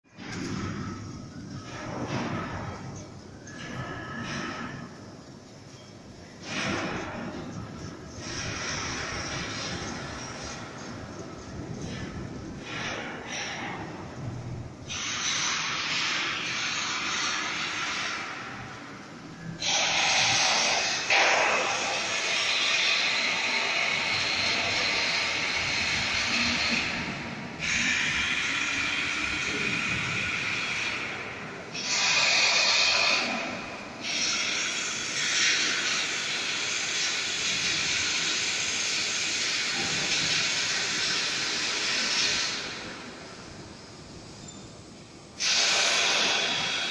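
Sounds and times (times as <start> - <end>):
welding machine hiss: 0.2 - 46.9.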